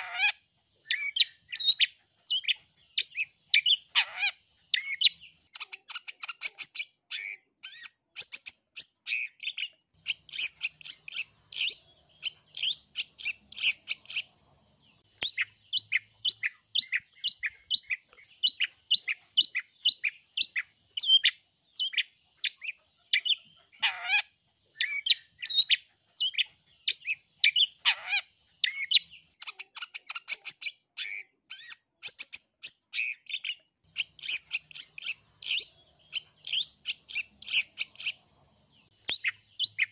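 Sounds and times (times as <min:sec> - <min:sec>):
faint high hiss: 0:00.0 - 0:05.5, 0:09.9 - 0:29.4, 0:33.8 - 0:39.9
harsh rasping bird calls: 0:00.0 - 0:39.9
shrike singing: 0:09.2 - 0:24.2, 0:33.9 - 0:39.9.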